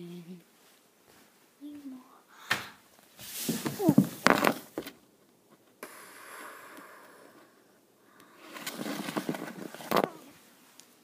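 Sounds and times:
steady hiss: 0:00.0 - 0:04.8, 0:05.7 - 0:08.6.

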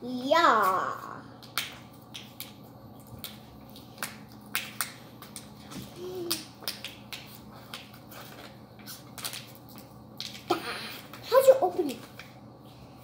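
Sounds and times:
plastic packaging clicks and crackles: 0:06.2 - 0:10.5.

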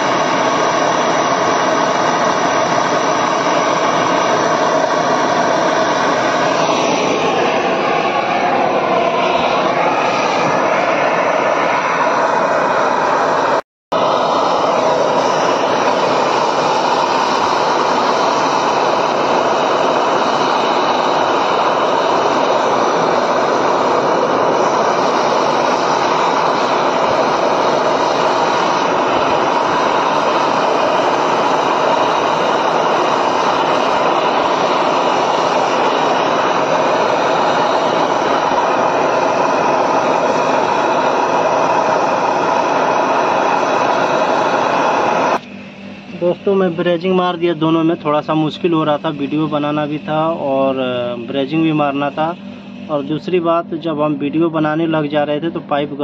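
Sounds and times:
gas torch burning: 0:00.0 - 0:56.0.

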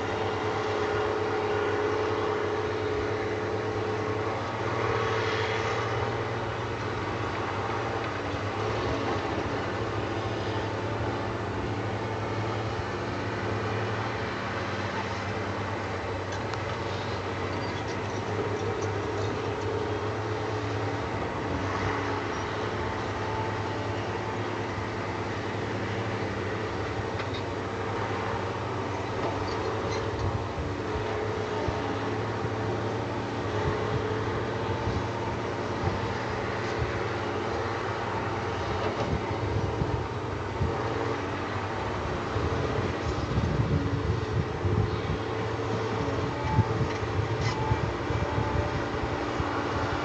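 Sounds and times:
excavator diesel engine running: 0:00.0 - 0:50.0.

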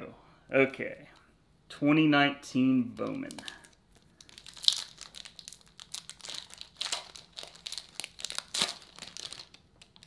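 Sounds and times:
foil wrapper tearing and crinkling: 0:03.0 - 0:10.0.

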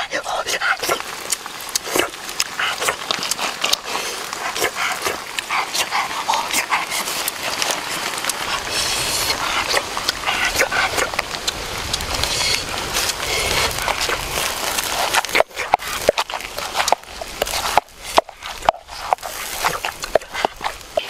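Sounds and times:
pestle pounding wet salad: 0:12.3 - 0:21.0.

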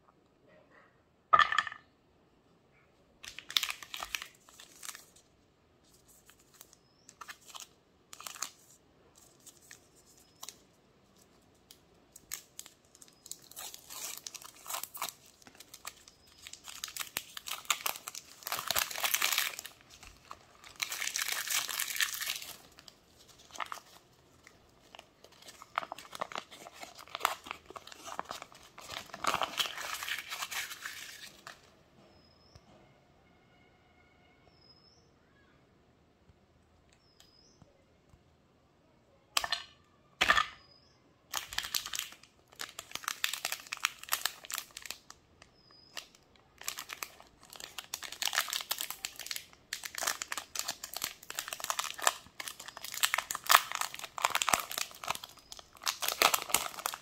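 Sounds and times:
wrapper crinkling and tearing: 0:03.2 - 0:31.7, 0:41.3 - 0:57.0.

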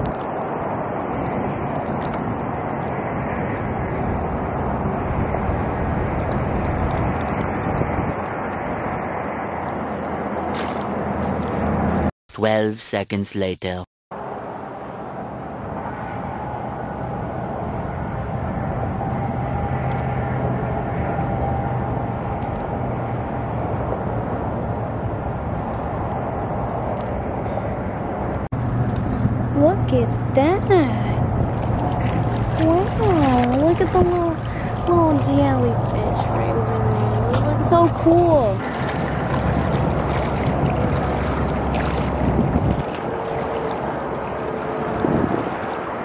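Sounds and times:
wind rumble on microphone: 0:00.0 - 0:12.1, 0:14.2 - 0:46.0
steady engine drone: 0:14.1 - 0:46.0.

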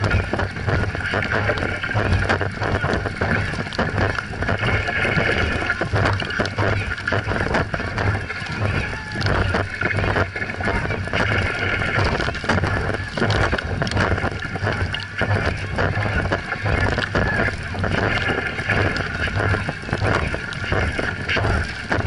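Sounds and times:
boat rushing through water: 0:00.0 - 0:22.0
paddles splashing into water: 0:00.0 - 0:22.0
wind buffeting microphone: 0:00.0 - 0:22.0.

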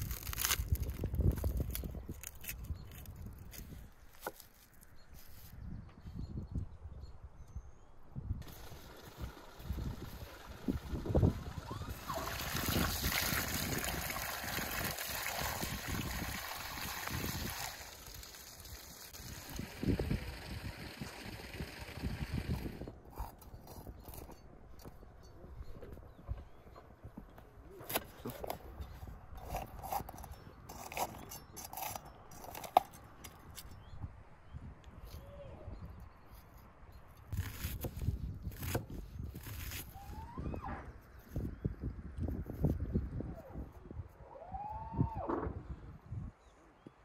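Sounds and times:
knife crunching through pepper: 0:00.0 - 0:03.1, 0:29.4 - 0:33.7
water from hose splashing: 0:08.4 - 0:22.8.

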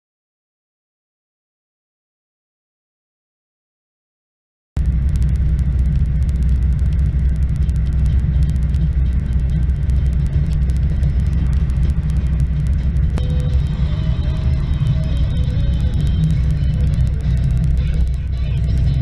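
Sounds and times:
car engine and tyre rumble: 0:04.8 - 0:19.0
rain ticking on windshield: 0:04.8 - 0:19.0.

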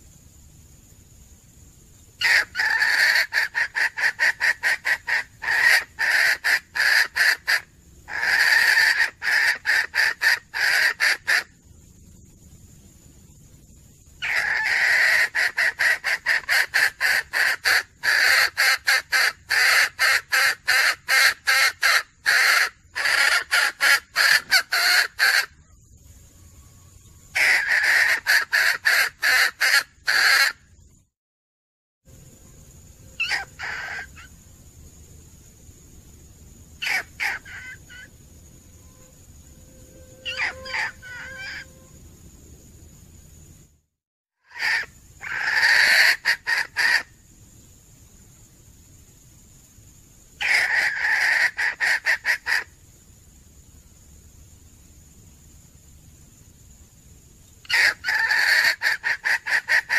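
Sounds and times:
hen clucking: 0:02.2 - 0:11.5, 0:40.3 - 0:41.7, 0:57.7 - 0:59.9.

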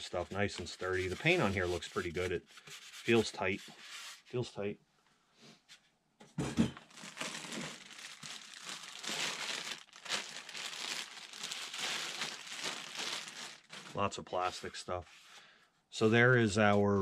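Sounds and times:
plastic bag crinkling: 0:06.8 - 0:14.2.

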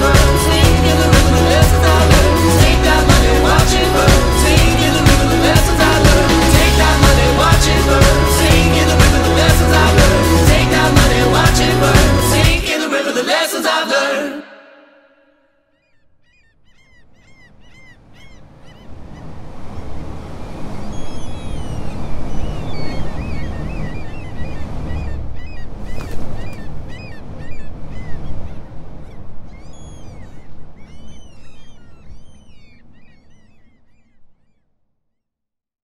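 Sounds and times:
low rumbling noise: 0:00.0 - 0:12.6
gulls calling: 0:00.0 - 0:14.4, 0:15.6 - 0:34.8.

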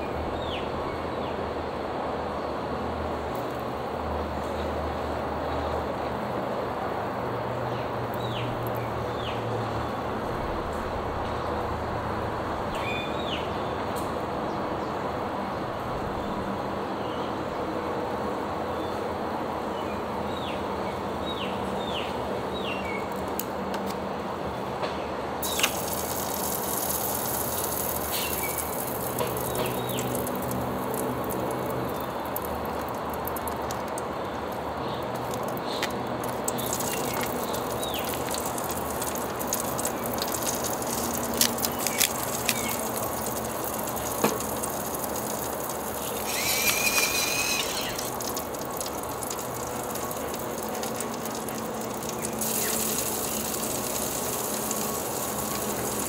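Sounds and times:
meat sizzling on grill pan: 0:25.4 - 0:29.7, 0:36.6 - 0:56.0
pepper grinder grinding: 0:46.1 - 0:49.0.

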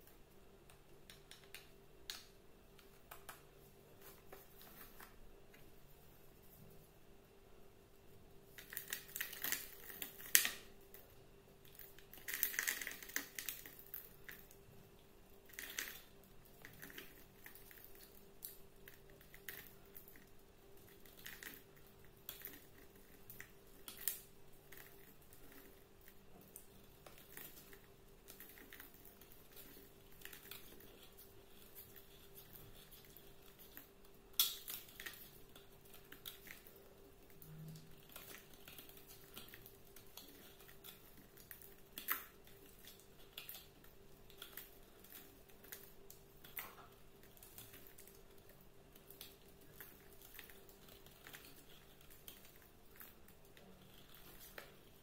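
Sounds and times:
knife scraping soap: 0:15.4 - 0:55.0.

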